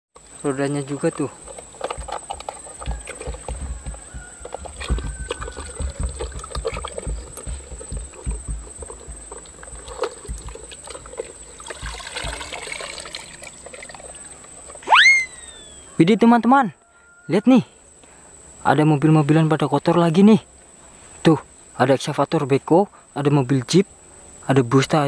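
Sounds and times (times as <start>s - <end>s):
plastic knocking against tub: 1.8s - 12.9s
water pouring off toy: 10.0s - 14.2s.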